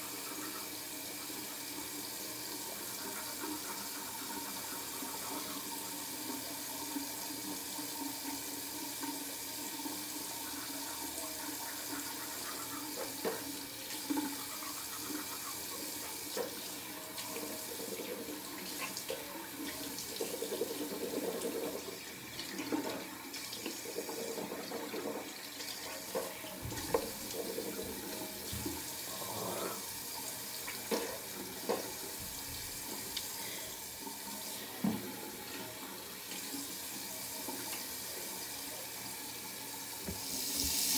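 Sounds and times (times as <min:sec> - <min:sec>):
tap running into sink: 0:26.1 - 0:28.9, 0:30.7 - 0:33.1, 0:34.8 - 0:35.2, 0:40.0 - 0:40.9.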